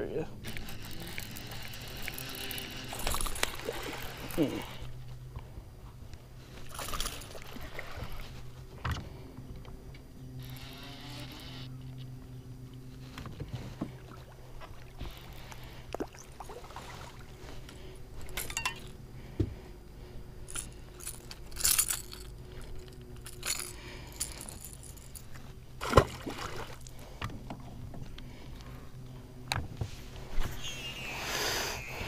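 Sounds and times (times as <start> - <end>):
low steady hum: 0.0 - 32.0
lure and hooks clicking and rattling: 0.4 - 4.8, 18.2 - 19.0, 20.5 - 25.5
fish thrashing: 0.4 - 4.9.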